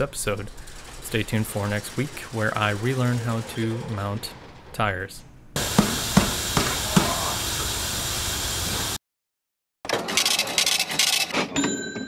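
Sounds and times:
cash register clatter: 0:00.4 - 0:04.6, 0:09.9 - 0:12.0
tire knocking on wheel: 0:05.6 - 0:07.3
compressed air hissing: 0:05.6 - 0:09.0.

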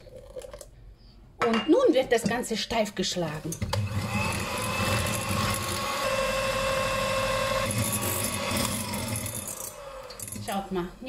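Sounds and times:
electric hand mixer whisking: 0:03.2 - 0:11.0.

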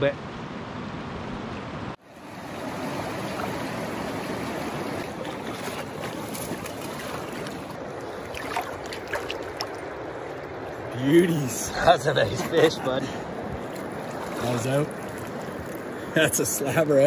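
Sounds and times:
river water rushing: 0:02.0 - 0:17.0.

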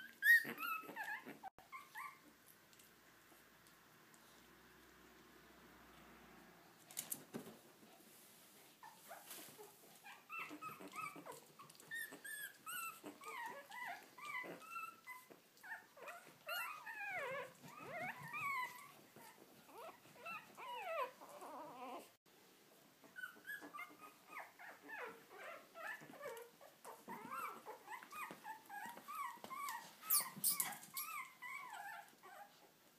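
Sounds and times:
puppies whimpering: 0:00.0 - 0:02.3, 0:10.0 - 0:22.2, 0:23.1 - 0:32.6.

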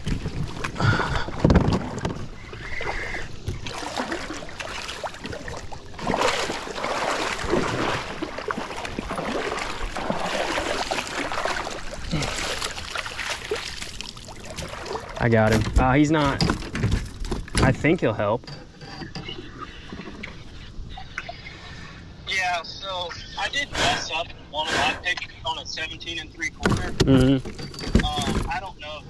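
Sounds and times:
fish thrashing at the surface: 0:00.0 - 0:15.3
water splashing around a kayak: 0:00.0 - 0:18.2.

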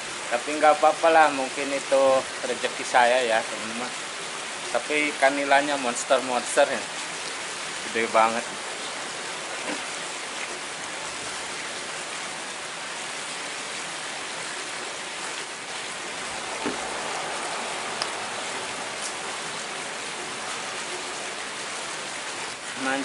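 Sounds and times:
rushing water: 0:00.0 - 0:23.0.

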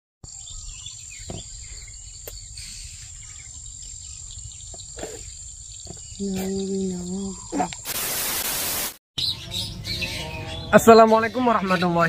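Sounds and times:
faint bird chirps: 0:00.3 - 0:07.9.

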